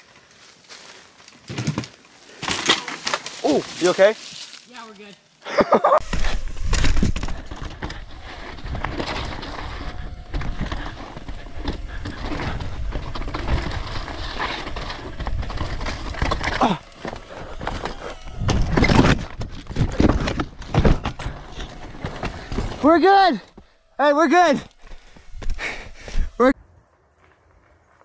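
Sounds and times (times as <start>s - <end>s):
crash thuds and scrapes: 6.0s - 23.7s
bike rattling over rock: 6.0s - 26.5s.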